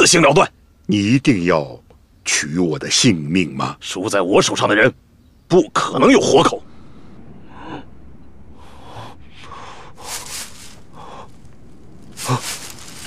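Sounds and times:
man breathing heavily: 6.7 - 13.0.

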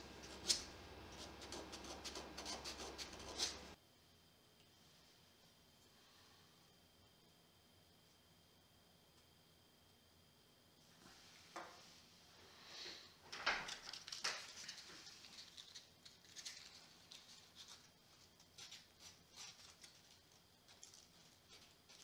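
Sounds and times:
sandpaper rubbing on wood: 1.2 - 3.8.

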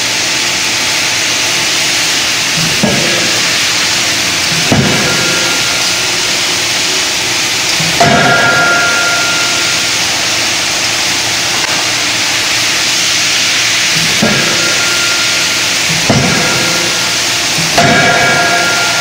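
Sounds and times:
loud hiss: 0.0 - 19.0
forging hammer striking metal: 2.5 - 11.9, 13.8 - 19.0.

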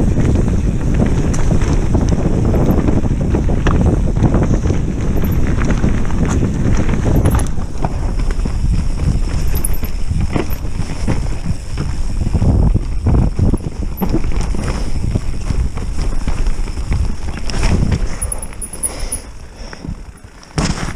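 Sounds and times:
bike clattering: 0.0 - 20.9
tyres rumbling on dirt: 0.0 - 20.9
wind on microphone: 0.0 - 20.9
camera mount rattling: 7.2 - 7.6, 9.4 - 10.6.

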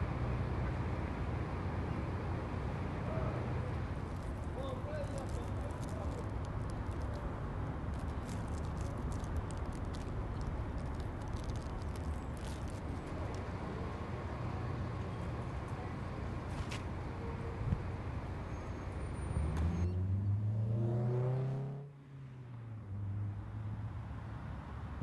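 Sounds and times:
city street traffic rumble: 0.0 - 25.0.

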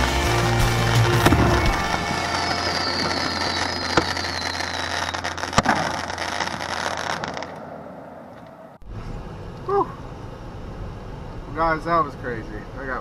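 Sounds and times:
fireworks crackling: 0.0 - 7.8
fireworks bangs: 0.0 - 8.2
falling firework whistle: 0.4 - 7.6.

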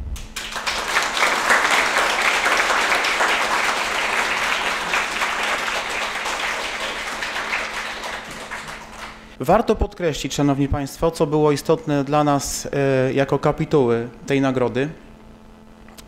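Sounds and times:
audience applauding: 0.2 - 9.4.

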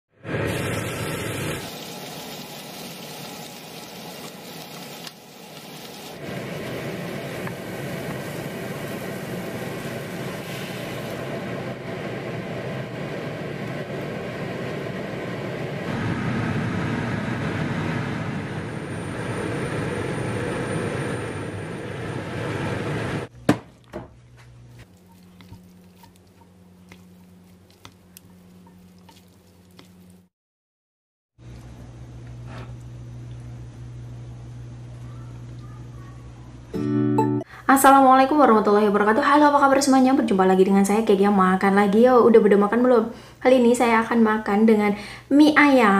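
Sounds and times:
paste sizzling in frying pan: 0.4 - 11.2, 24.8 - 30.3
sauce bubbling at simmer: 24.8 - 30.3.

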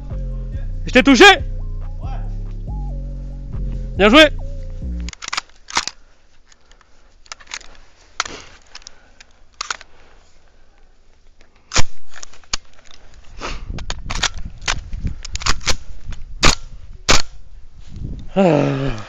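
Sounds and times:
airsoft gun cracks: 16.4 - 17.4.

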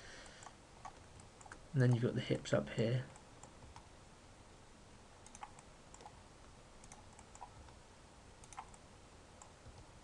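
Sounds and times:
keyboard and mouse clicks: 0.2 - 2.1, 5.2 - 6.2, 6.8 - 7.8, 8.4 - 8.8.

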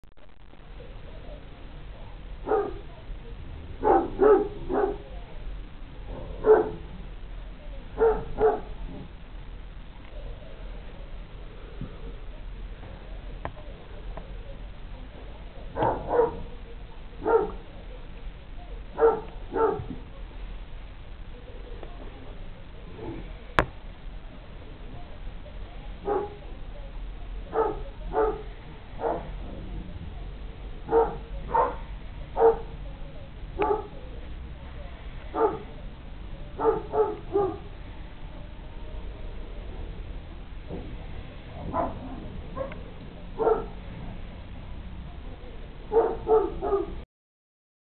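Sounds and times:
large dog barking: 2.4 - 3.0, 3.7 - 5.2, 6.1 - 7.0, 7.9 - 9.1, 15.7 - 16.6, 17.2 - 17.7, 18.9 - 20.0, 26.0 - 26.5, 27.5 - 29.7, 30.8 - 32.8, 33.6 - 34.0, 35.3 - 35.8, 36.5 - 37.7, 41.5 - 43.8, 45.9 - 47.0.

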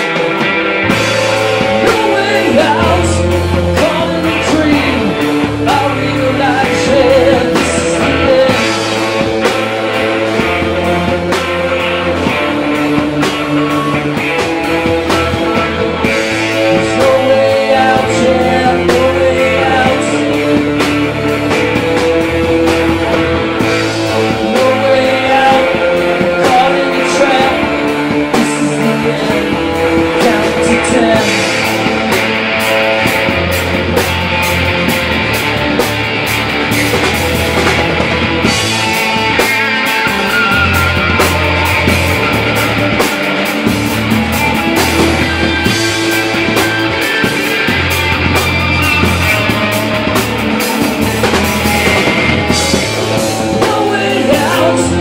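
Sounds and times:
live rock band playing: 0.0 - 55.0.

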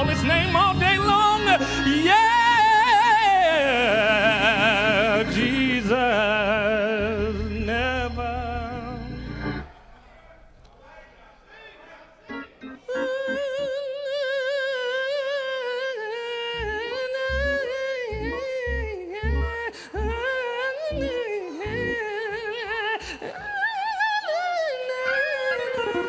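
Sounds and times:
low bass beats: 0.0 - 2.3, 4.4 - 9.7
person singing wordless vibrato notes: 0.0 - 9.7, 12.2 - 26.0.

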